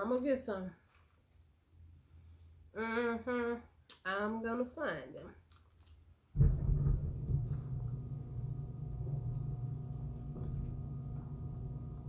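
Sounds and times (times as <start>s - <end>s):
low steady mechanical hum: 5.8s - 12.0s.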